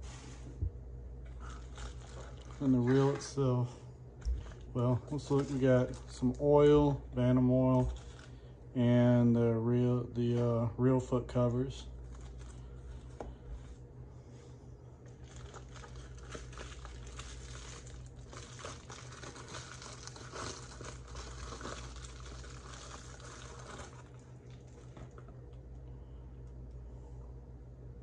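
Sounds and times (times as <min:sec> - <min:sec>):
steady low hum: 0:00.0 - 0:28.0
bubble wrap crinkling: 0:01.2 - 0:03.5, 0:04.2 - 0:07.0, 0:07.6 - 0:08.5, 0:11.9 - 0:13.8, 0:15.0 - 0:25.4.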